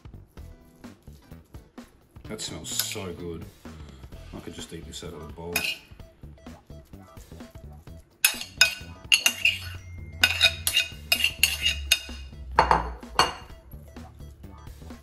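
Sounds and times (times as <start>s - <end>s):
metal spoon scraping ceramic bowl: 5.5s - 6.0s, 8.2s - 13.5s.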